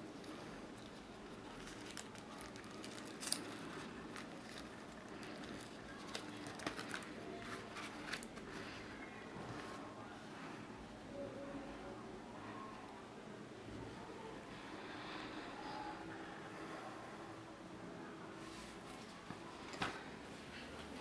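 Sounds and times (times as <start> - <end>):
plastic sleeves crinkling: 0.1 - 9.0.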